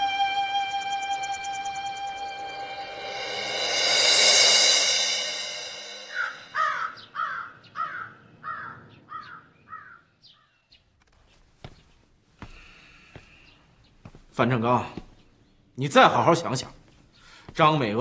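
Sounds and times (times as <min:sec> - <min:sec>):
background music: 0:00.0 - 0:07.1
crow cawing: 0:06.1 - 0:10.6.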